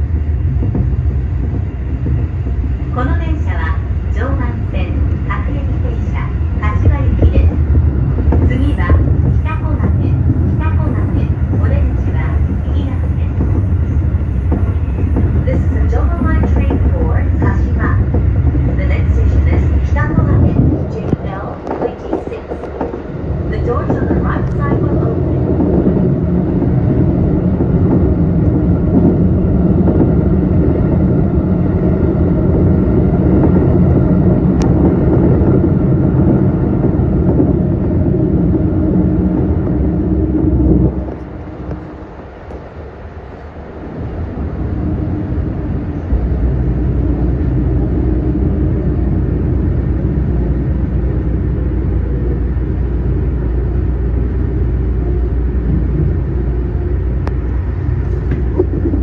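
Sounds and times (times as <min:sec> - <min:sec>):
train wheels rumbling on rail: 0:00.0 - 0:59.0
deep low hum: 0:23.3 - 0:42.2.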